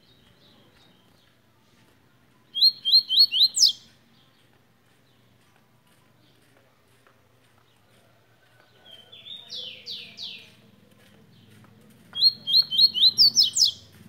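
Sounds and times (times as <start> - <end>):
songbird whistling and chirping: 2.4 - 4.0, 12.1 - 14.0.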